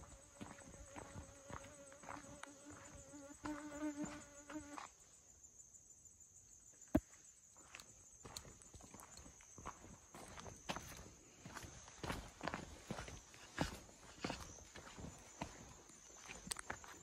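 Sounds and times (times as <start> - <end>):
footsteps scuffing on trail: 0.0 - 4.9, 7.0 - 17.0
flying insect buzzing: 0.0 - 5.2
insect chorus: 0.0 - 17.0.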